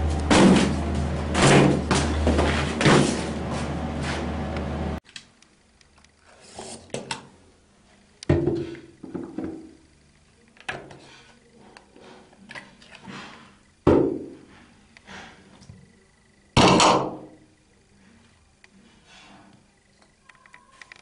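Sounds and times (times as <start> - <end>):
knocks and thuds: 0.1 - 3.4, 13.8 - 14.4.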